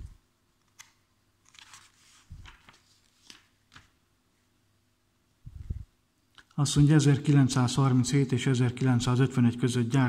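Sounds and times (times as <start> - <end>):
magazine pages rustling: 0.7 - 4.0.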